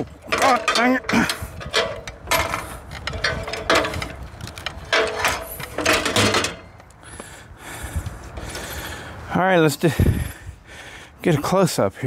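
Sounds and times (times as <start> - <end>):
metal frame scraping on rails: 0.0 - 6.8.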